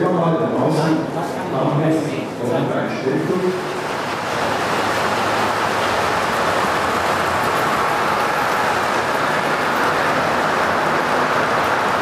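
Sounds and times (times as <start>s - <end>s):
model train wheels rumbling: 3.2s - 12.0s.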